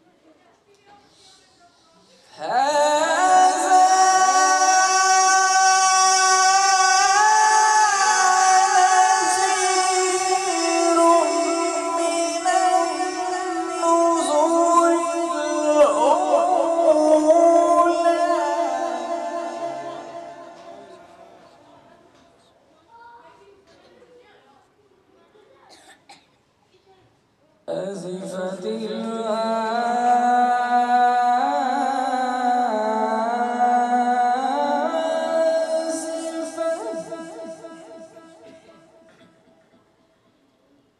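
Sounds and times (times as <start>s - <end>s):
man chanting melodically: 2.4s - 21.8s, 27.7s - 39.0s.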